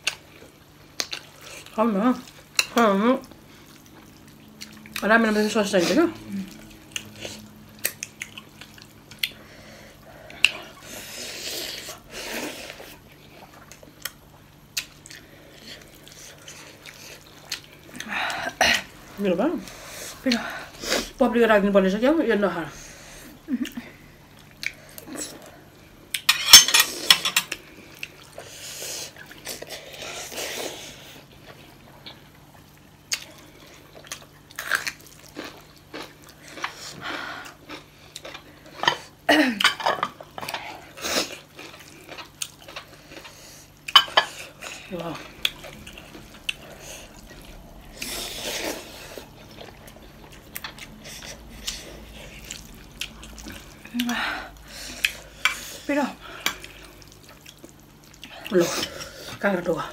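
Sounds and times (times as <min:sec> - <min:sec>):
chewing with wet clicks: 0:00.0 - 0:05.1, 0:06.5 - 0:09.4, 0:13.1 - 0:18.1, 0:23.6 - 0:25.5, 0:27.5 - 0:28.5, 0:31.4 - 0:39.1, 0:41.3 - 0:48.1, 0:49.2 - 0:54.2, 0:56.3 - 0:58.5.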